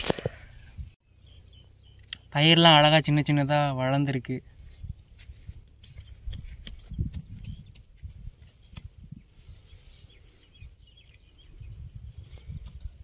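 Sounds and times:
faint bird chirps: 0.5s - 2.6s.

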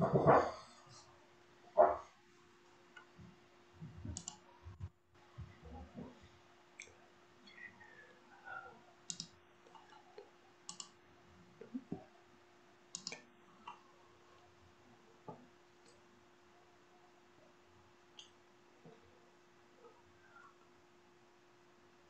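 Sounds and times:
faint sharp clicks: 9.1s - 9.4s, 10.2s - 11.0s, 12.9s - 13.8s.

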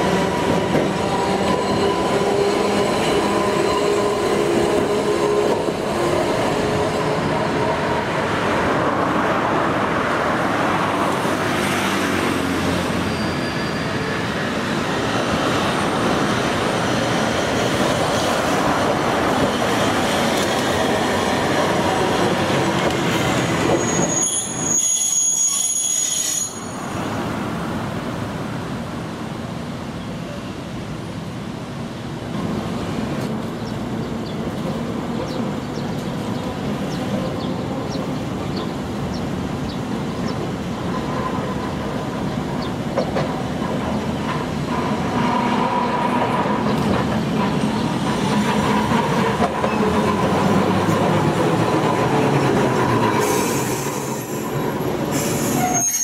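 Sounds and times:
streetcar wheels rolling on rail: 0.0s - 56.0s
high-pitched wheel squeal: 13.0s - 14.4s, 23.6s - 26.9s, 53.2s - 56.0s.

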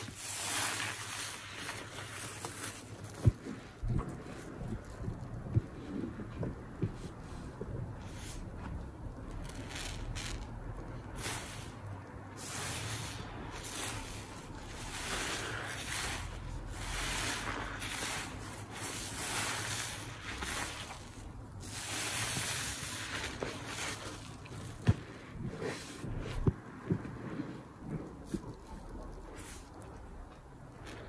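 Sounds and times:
sponge squeezed in soap suds: 0.0s - 31.0s.

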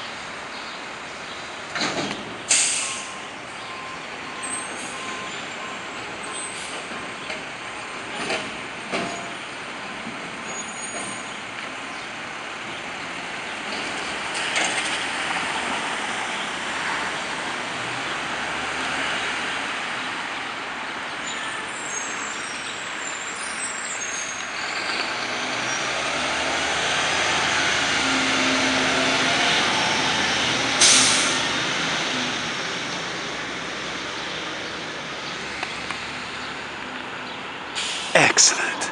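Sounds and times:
traffic noise: 0.0s - 38.9s
air brakes hissing: 2.5s - 3.2s, 30.8s - 31.4s, 37.8s - 38.2s
truck diesel engine: 24.4s - 38.9s.

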